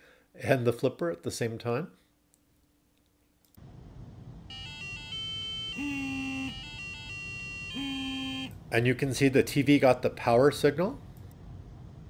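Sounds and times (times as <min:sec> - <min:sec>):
beeping electronic melody: 0:04.5 - 0:08.5.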